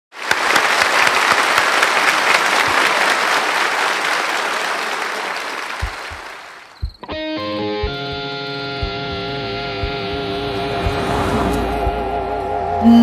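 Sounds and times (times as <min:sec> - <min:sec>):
audience applauding: 0:00.1 - 0:06.9.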